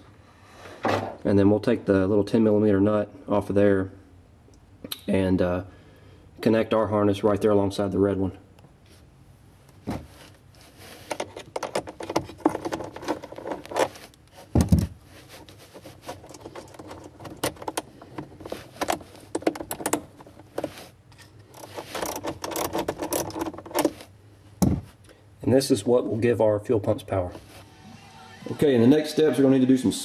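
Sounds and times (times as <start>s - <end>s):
small metallic clicks and rattles: 16.1s - 24.0s
heavy thump: 24.6s - 24.9s.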